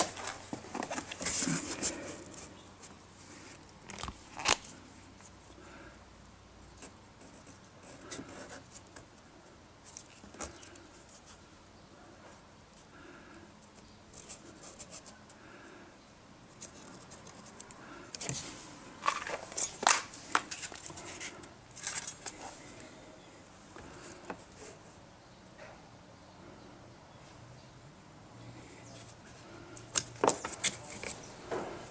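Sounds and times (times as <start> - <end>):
cardboard rustling: 0.0 - 5.4.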